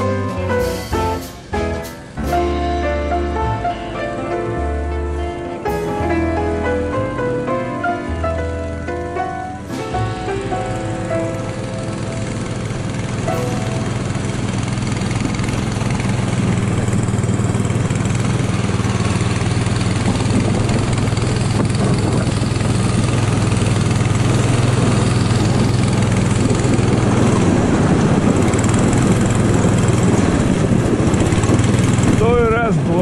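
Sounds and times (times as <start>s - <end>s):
small engine droning: 0.0s - 33.0s.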